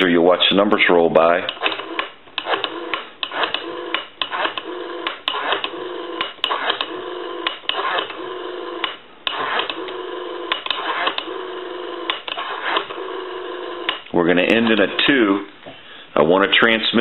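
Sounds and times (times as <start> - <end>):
rotary phone dial clicking: 1.5 - 11.4
low steady phone line tone: 5.7 - 6.2, 6.9 - 7.5, 8.2 - 8.8, 9.8 - 10.5.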